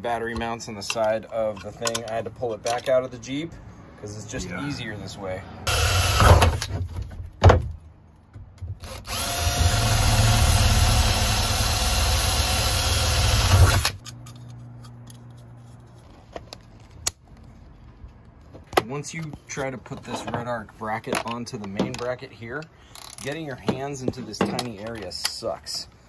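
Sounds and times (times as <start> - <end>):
power drill drilling metal: 5.7 - 6.7, 8.8 - 14.0.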